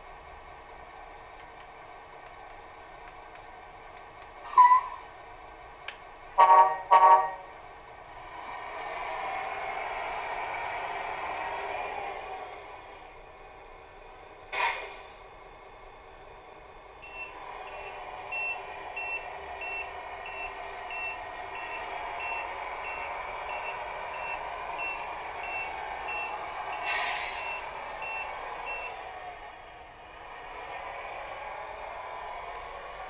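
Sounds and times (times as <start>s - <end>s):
air brake hiss: 4.4s - 5.1s, 14.5s - 15.3s, 26.8s - 27.7s.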